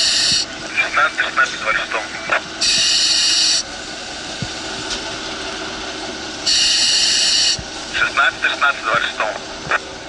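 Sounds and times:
loud hissing bursts: 0.0s - 0.5s, 2.6s - 3.8s, 6.4s - 8.2s
fire truck engine running: 0.0s - 10.0s.

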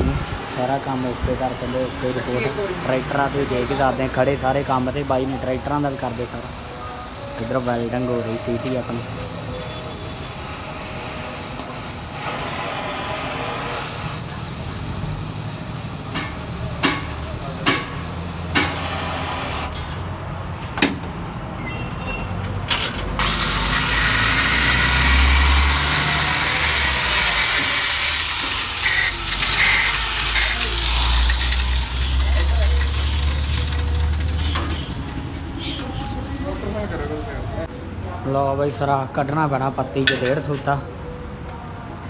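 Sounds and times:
welding torch hissing: 2.8s - 19.9s, 23.2s - 35.0s
sharp metallic knocks: 16.1s - 18.9s
loud rough noise: 23.2s - 35.0s.

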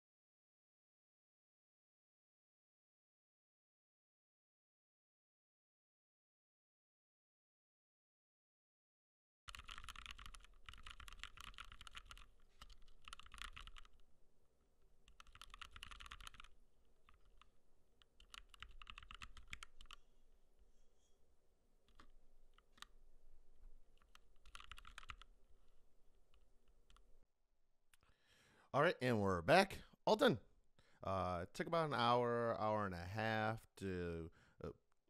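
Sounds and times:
mechanical keyboard typing: 9.5s - 14.0s, 15.0s - 20.0s, 24.0s - 25.3s.

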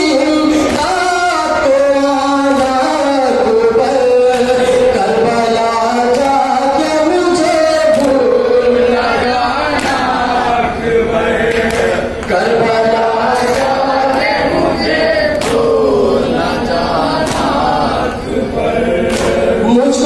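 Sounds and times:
man singing lament into microphone: 0.0s - 10.5s, 12.3s - 20.0s
group of men and boys chanting: 0.0s - 20.0s
sharp beat: 11.4s - 18.2s.

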